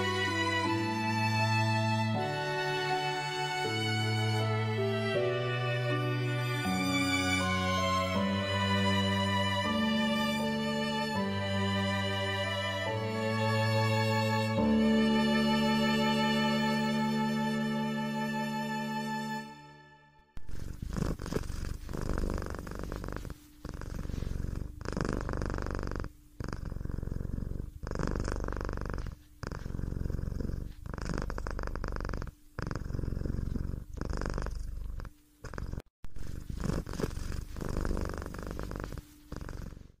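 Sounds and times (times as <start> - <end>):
cat purring: 20.4 - 40.0.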